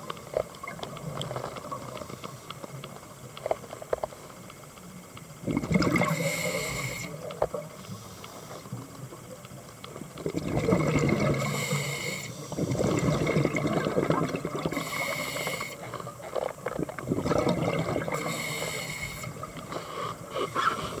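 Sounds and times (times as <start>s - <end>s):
bubbling gurgling exhales: 5.4s - 6.8s, 10.2s - 11.9s, 12.5s - 15.7s, 16.6s - 19.7s
regulator hissing inhales: 6.1s - 7.2s, 11.4s - 12.8s, 14.8s - 15.9s, 18.2s - 21.0s.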